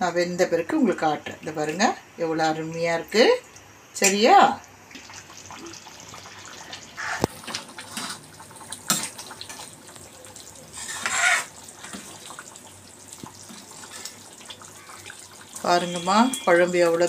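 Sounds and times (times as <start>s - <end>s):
gravy sloshing: 4.8s - 16.6s.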